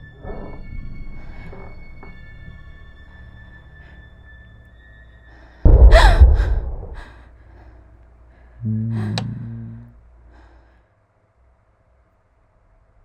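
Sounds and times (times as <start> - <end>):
horror film scare hit: 5.7 - 7.2
low steady tone: 8.6 - 10.0.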